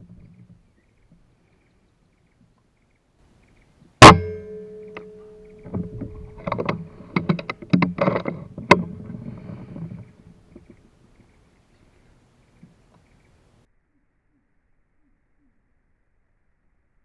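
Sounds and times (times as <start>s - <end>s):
air rifle shot: 4.0s - 5.8s
knocks and rustling: 4.0s - 10.8s.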